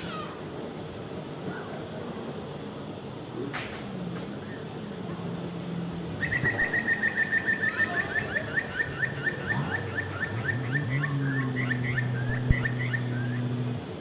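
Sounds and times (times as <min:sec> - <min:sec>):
low engine hum: 0:02.3 - 0:14.0
bird chirping: 0:06.2 - 0:13.8.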